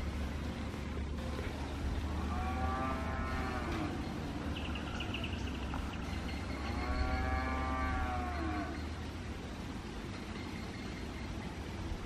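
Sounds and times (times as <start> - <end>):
steady low rumble: 0.0 - 6.8.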